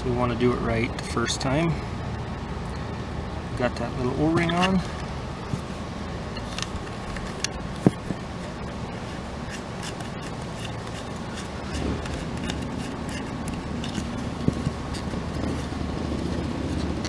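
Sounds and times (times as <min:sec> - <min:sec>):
steady low background hum: 0:00.0 - 0:17.0
hands handling plastic plate: 0:06.4 - 0:15.7.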